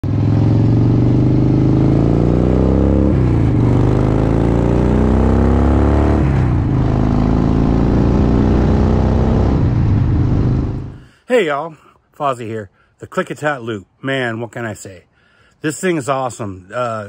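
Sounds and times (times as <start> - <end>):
motorcycle engine accelerating: 0.0 - 11.0.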